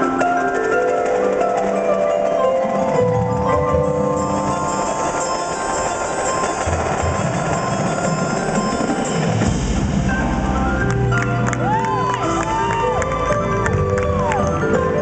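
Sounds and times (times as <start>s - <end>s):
marimbas and vibraphones: 0.0s - 15.0s
marching drums and cymbals: 4.1s - 10.9s.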